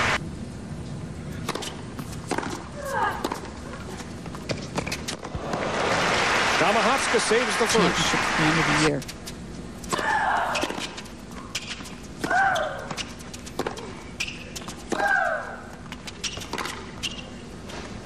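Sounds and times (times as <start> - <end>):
tennis ball bouncing: 1.4 - 3.6, 9.8 - 17.2
woman shrieking: 10.0 - 10.7.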